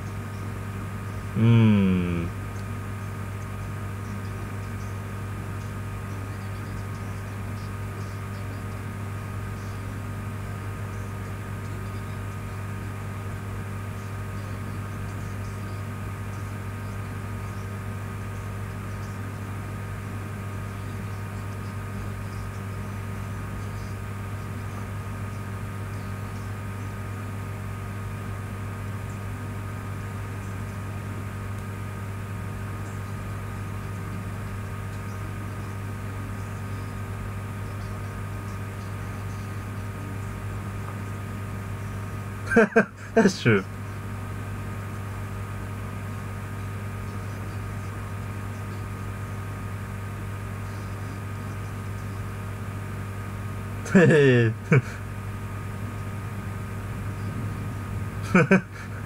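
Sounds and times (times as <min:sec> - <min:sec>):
low hum: 0:29.0 - 0:45.4, 0:53.7 - 0:59.0.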